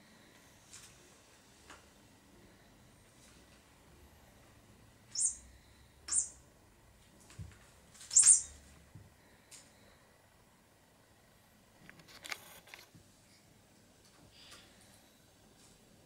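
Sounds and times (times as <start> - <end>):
high-pitched bird-like chirps: 5.1 - 6.4, 8.1 - 8.6.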